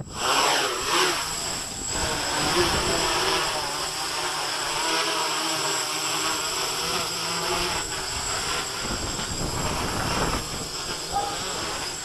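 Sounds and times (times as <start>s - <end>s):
wind buffeting microphone: 0.0s - 3.8s, 7.4s - 12.0s
quadcopter propellers whirring: 0.0s - 12.0s.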